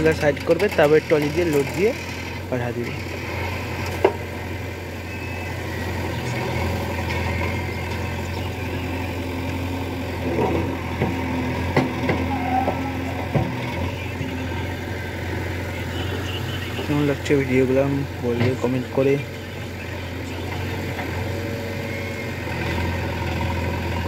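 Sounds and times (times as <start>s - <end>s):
backhoe digging wet mud: 0.0s - 4.3s, 5.1s - 19.1s
diesel engine running: 0.0s - 24.0s.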